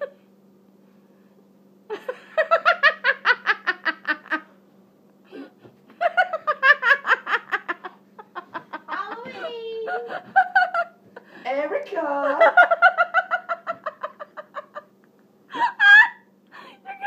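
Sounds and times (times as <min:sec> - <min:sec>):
hearty laughter: 0:01.9 - 0:04.5, 0:05.9 - 0:11.3, 0:12.3 - 0:16.2.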